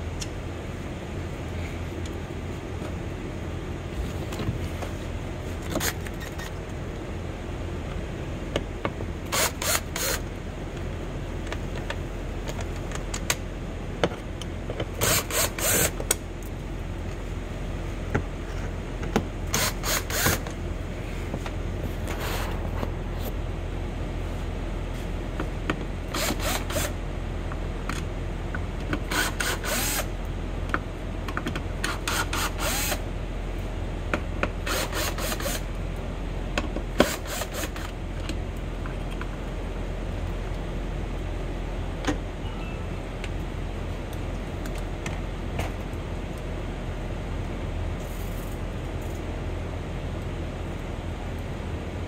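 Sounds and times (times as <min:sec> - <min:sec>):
steady low hum: 0:00.0 - 0:52.0
hand tool rapid clicking: 0:09.3 - 0:10.2, 0:15.0 - 0:16.0, 0:29.0 - 0:30.1, 0:31.8 - 0:33.0, 0:34.6 - 0:35.6, 0:37.0 - 0:37.9.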